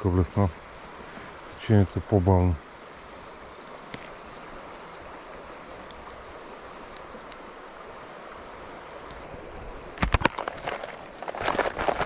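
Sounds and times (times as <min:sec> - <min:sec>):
river flowing over stones: 0:00.0 - 0:12.0.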